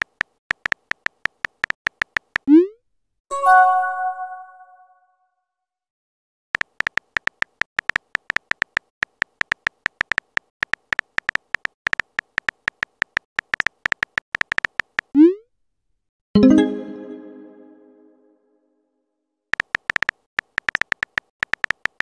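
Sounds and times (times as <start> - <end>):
phone keyboard tapping clicks: 0.0 - 2.5, 6.6 - 15.1, 19.5 - 22.0
notification chime: 3.3 - 4.8, 16.4 - 18.2.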